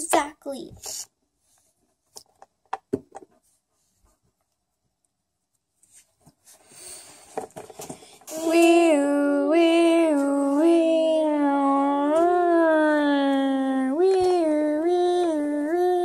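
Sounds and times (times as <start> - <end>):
girl imitating siren: 8.3 - 16.0.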